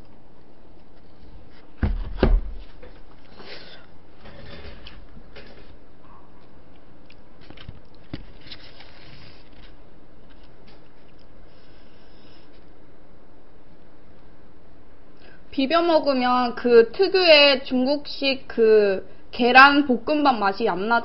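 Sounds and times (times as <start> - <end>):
rustling and scraping: 0.7 - 5.8, 7.4 - 12.7.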